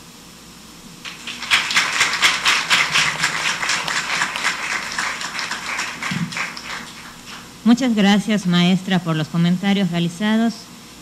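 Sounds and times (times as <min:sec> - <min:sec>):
audience applauding: 0:01.0 - 0:07.5.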